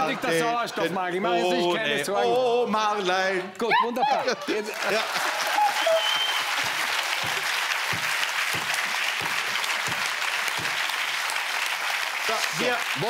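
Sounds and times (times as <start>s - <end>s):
audience clapping: 4.4s - 13.0s.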